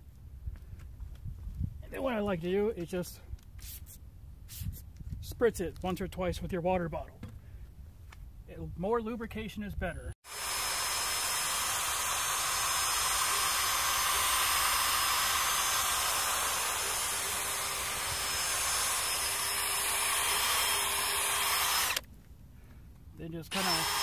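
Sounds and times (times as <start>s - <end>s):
hand drill whirring: 10.2s - 22.1s, 23.5s - 24.0s.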